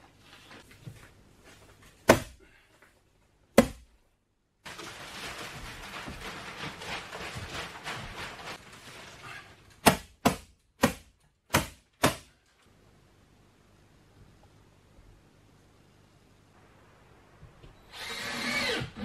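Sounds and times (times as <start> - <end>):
plastic sheeting crinkling: 4.6 - 9.8.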